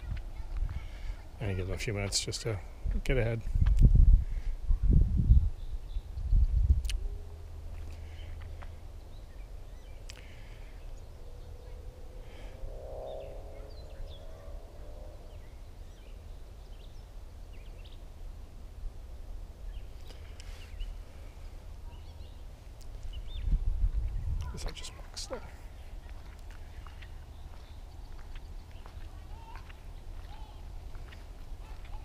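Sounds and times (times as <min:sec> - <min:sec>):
steady low rumble: 0:00.0 - 0:32.0
wavering hum: 0:08.9 - 0:20.3
bird chirps: 0:12.7 - 0:18.0, 0:25.7 - 0:32.0.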